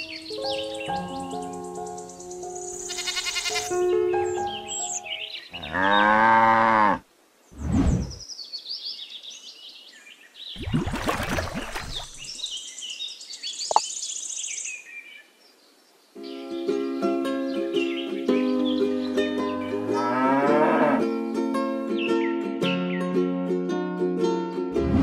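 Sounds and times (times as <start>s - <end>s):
birds chirping: 0.0s - 6.4s, 8.0s - 16.4s
cow mooing: 5.6s - 7.0s, 20.0s - 21.0s
water sloshing: 10.6s - 12.5s.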